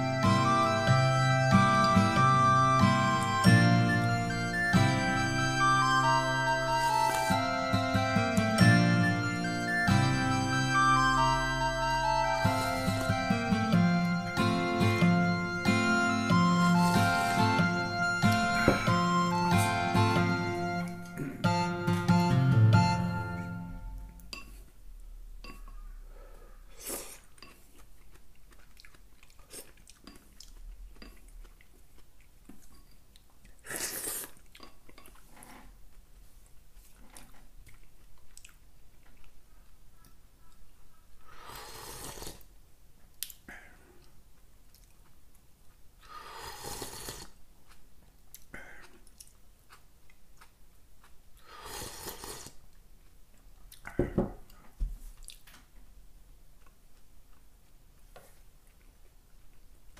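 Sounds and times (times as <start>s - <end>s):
person chewing: 6.1s - 7.5s, 16.4s - 19.9s, 26.6s - 40.6s, 41.3s - 42.5s, 43.1s - 55.5s, 56.5s - 59.9s
person slurping soup: 26.7s - 27.6s, 33.6s - 34.4s, 35.2s - 35.8s, 41.3s - 42.5s, 46.0s - 47.4s, 51.4s - 52.6s.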